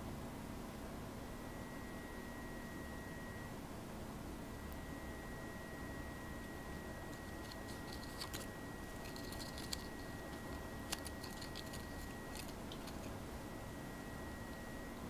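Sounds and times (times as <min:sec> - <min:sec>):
cat claws scratching plush toy: 0:07.1 - 0:13.2
small clicks: 0:07.2 - 0:13.1.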